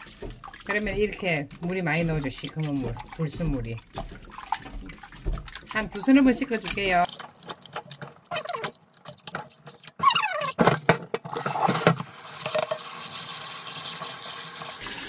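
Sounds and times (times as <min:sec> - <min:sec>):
kitchen tap running: 0:00.0 - 0:10.7, 0:11.4 - 0:15.0
water splashing: 0:00.0 - 0:10.7.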